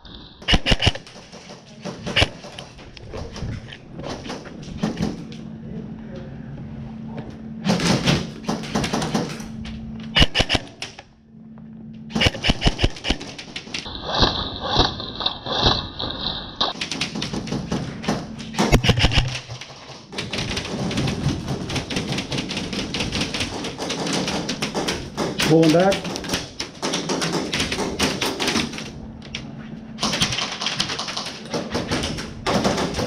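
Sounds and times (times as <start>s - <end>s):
airsoft guns firing bursts: 0.4s - 2.7s, 10.2s - 10.8s, 12.1s - 13.9s, 18.5s - 28.7s.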